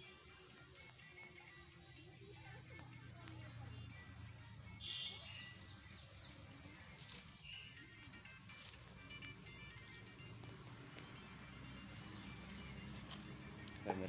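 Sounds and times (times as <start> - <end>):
faint rural outdoor ambience: 0.0 - 14.0
high bird chirps: 4.8 - 6.5.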